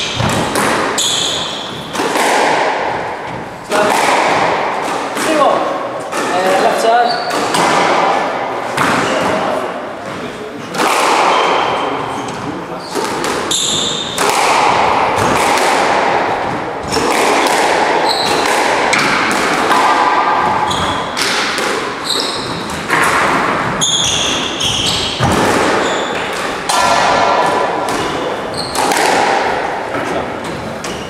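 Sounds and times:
squash ball hitting rackets and walls: 0.0 - 31.0
shoe squeaks on wooden floor: 1.0 - 1.9, 7.0 - 7.4, 11.3 - 14.2, 18.0 - 18.4, 20.6 - 21.2, 22.0 - 22.7, 23.8 - 26.3, 28.5 - 28.8.

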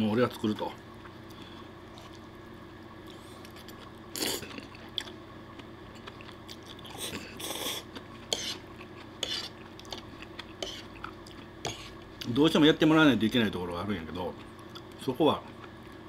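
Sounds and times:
person chewing: 3.0 - 12.3, 14.4 - 16.0
person slurping noodles: 6.9 - 8.6.

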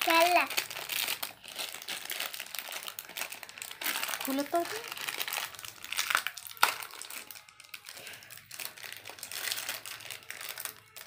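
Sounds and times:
plastic wrapper crinkling: 0.0 - 11.0.

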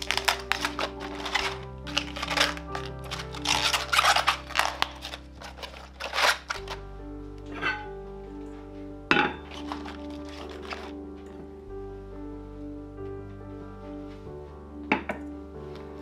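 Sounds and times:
cabbage leaves rustling and tearing: 0.0 - 6.8, 9.5 - 11.0
background music: 0.0 - 16.0.

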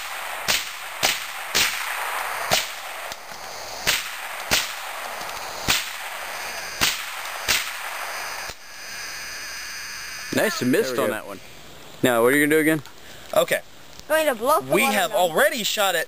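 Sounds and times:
rifle shots: 0.0 - 3.1, 3.8 - 8.2.

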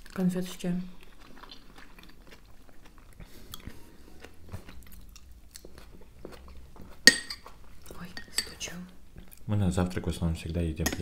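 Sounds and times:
people chewing eggs: 0.0 - 9.5.

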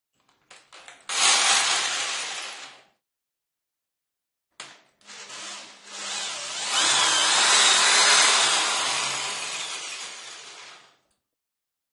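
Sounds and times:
power drill whirring: 1.1 - 2.7, 5.0 - 11.0.

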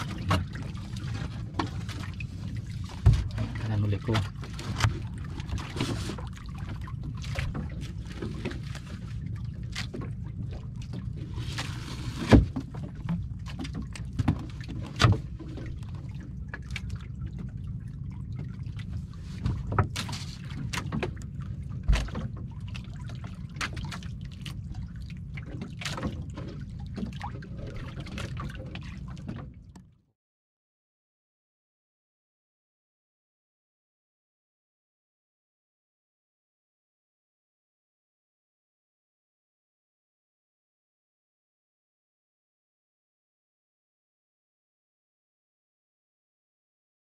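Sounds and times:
small boat engine running: 0.0 - 30.1.

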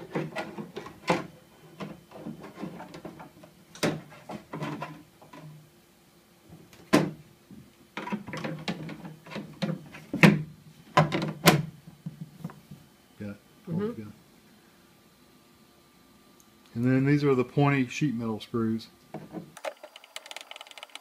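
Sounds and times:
plastic handling rattle: 0.0 - 5.5.

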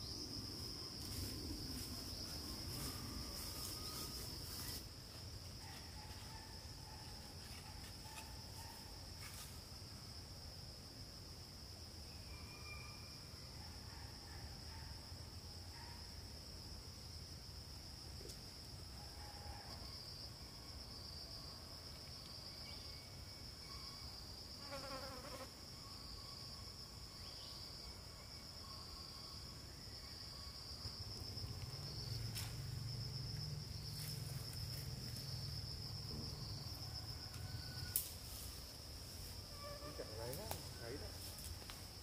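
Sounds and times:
insects chirring: 0.0 - 42.0.

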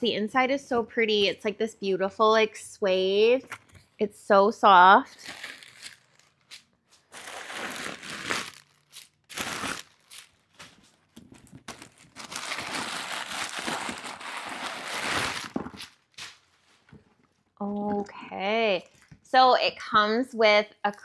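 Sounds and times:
packing material crinkling: 5.2 - 16.6.

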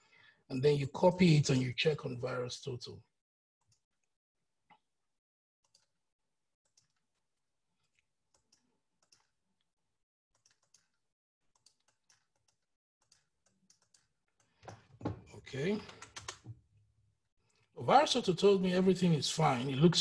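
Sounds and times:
mouse and keyboard clicks: 10.4 - 11.0, 11.6 - 14.5, 15.8 - 16.6.

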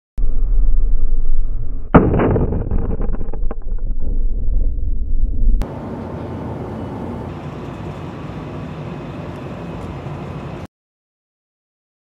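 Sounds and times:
explosion rumble: 0.2 - 5.7.

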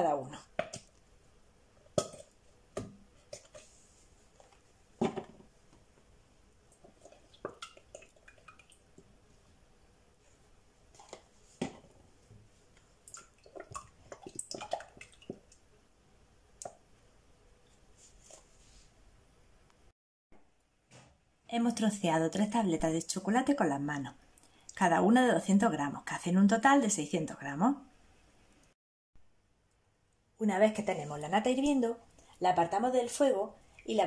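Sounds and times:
cartons and pot knocking: 0.5 - 0.9, 1.8 - 3.6, 4.4 - 5.9, 6.8 - 9.0
splashing and dripping: 6.7 - 9.1, 13.0 - 15.6.

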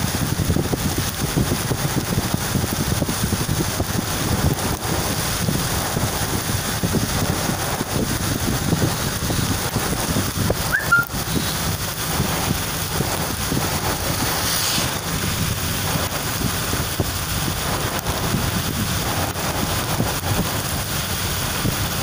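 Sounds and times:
vehicle driving on wet road: 0.0 - 22.0
wind noise: 0.0 - 22.0
high rising chirp: 10.7 - 11.1
short hiss: 14.2 - 15.3.

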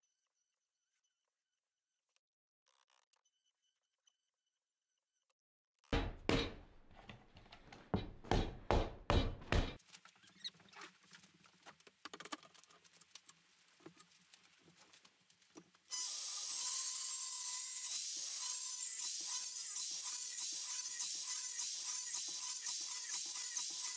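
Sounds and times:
wood and tools knocking: 6.0 - 9.8.

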